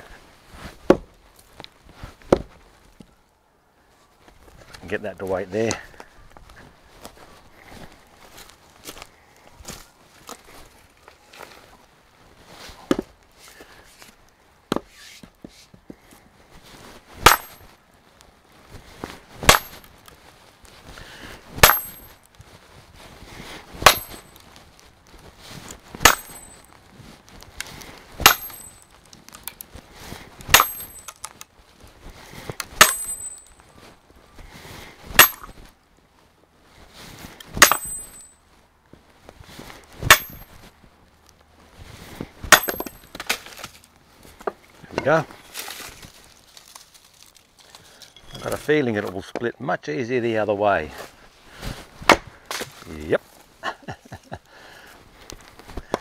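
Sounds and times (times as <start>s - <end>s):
sledgehammer striking steel wedge: 17.2s - 17.7s, 19.4s - 19.9s, 21.6s - 22.2s, 23.8s - 24.2s, 26.0s - 26.6s, 28.2s - 28.8s, 30.5s - 31.2s, 32.8s - 33.5s, 35.2s - 35.6s, 37.6s - 38.3s, 40.0s - 40.6s, 42.5s - 43.1s.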